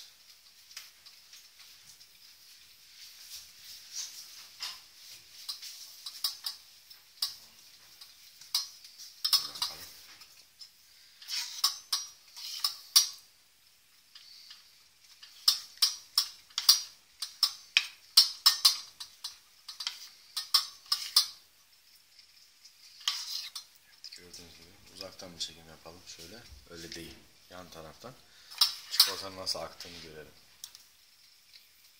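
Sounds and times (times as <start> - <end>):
metal spoon scraping a steel bowl: 11.2 - 13.2, 18.2 - 21.4, 22.7 - 24.2, 28.4 - 30.2.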